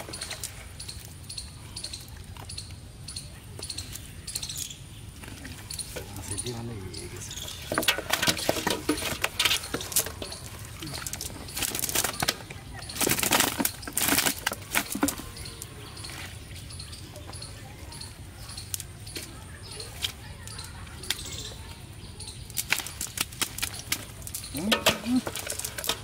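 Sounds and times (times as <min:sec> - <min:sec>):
fish flapping and slapping: 0:07.6 - 0:15.4, 0:22.5 - 0:26.0.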